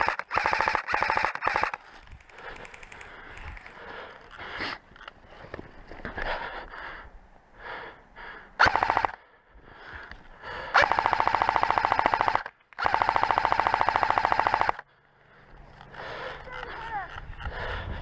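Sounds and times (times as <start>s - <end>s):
airsoft rifle automatic fire: 0.0s - 1.8s, 8.6s - 9.2s, 10.8s - 14.8s.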